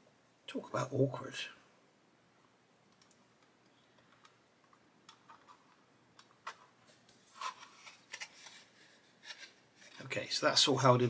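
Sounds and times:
plastic parts clicking: 0:02.9 - 0:06.7.

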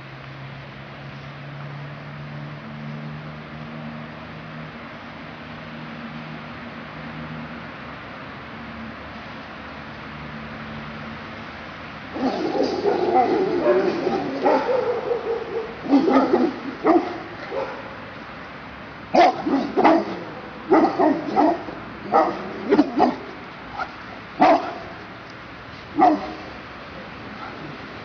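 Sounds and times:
large dogs barking: 0:12.1 - 0:18.2, 0:19.1 - 0:25.0, 0:25.9 - 0:28.0.

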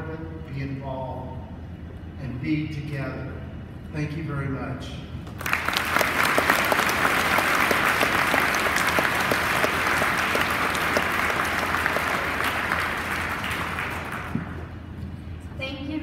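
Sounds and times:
audience applause: 0:05.4 - 0:14.7.

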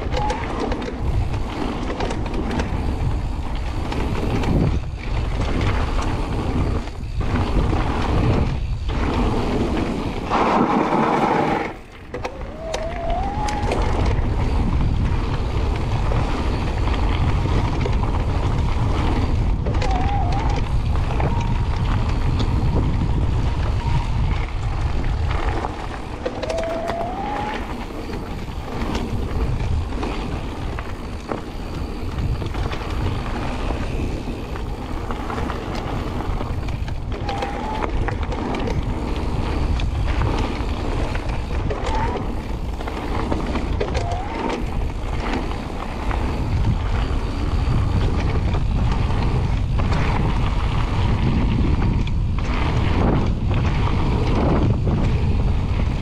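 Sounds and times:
bike rattling: 0:00.0 - 0:56.0
wind buffeting microphone: 0:00.0 - 0:56.0
tyres crunching over gravel: 0:00.1 - 0:56.0
brief squeaks: 0:26.4 - 0:27.6.

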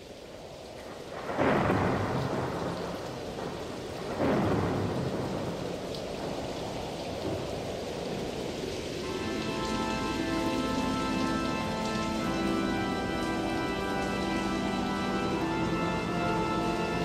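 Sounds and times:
steady rain: 0:00.0 - 0:17.0
thunder rolls: 0:00.9 - 0:09.2.

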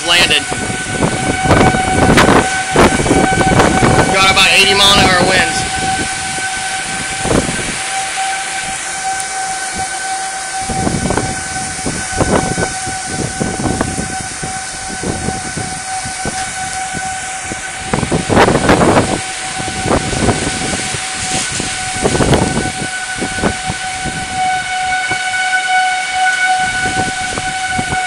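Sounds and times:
high whistling tone: 0:00.0 - 0:28.0
wind gusting against house: 0:00.0 - 0:28.0.

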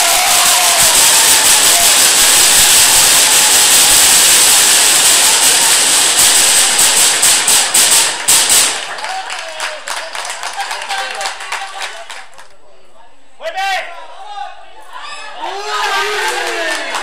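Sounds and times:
crowd clapping: 0:00.0 - 0:12.6, 0:16.1 - 0:17.0.

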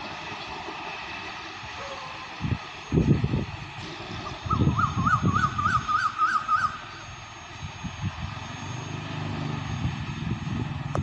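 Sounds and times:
train rumbling on rails: 0:00.0 - 0:11.0
bird calling: 0:04.3 - 0:07.2.

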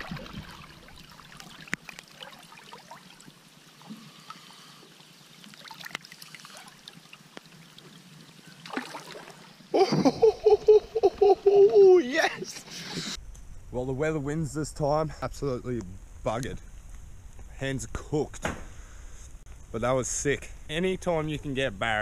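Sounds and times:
creek water trickling: 0:00.0 - 0:12.9
man whooping: 0:09.8 - 0:12.5.

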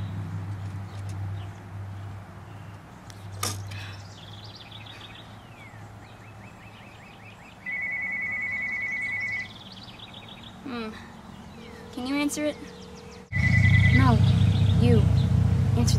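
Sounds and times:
electronic telephone ring: 0:07.7 - 0:09.5.

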